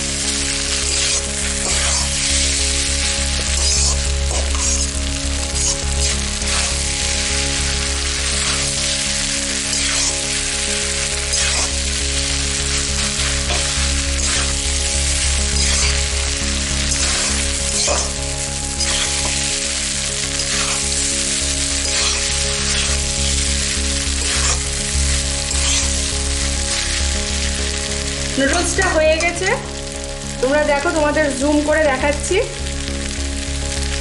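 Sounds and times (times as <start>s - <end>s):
noodles sizzling in a pan: 0.0s - 34.0s
spatula scraping a pan: 0.8s - 2.6s, 3.4s - 4.9s, 5.6s - 6.8s, 8.1s - 9.0s, 9.6s - 10.6s, 11.2s - 11.9s, 12.7s - 16.1s, 16.8s - 19.6s, 20.3s - 23.5s, 24.1s - 26.1s.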